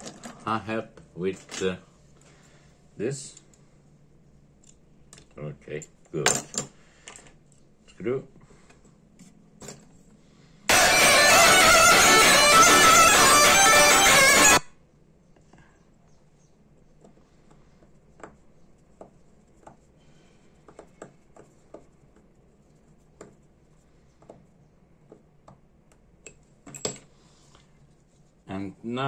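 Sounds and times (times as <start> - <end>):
loud music: 10.7 - 14.7.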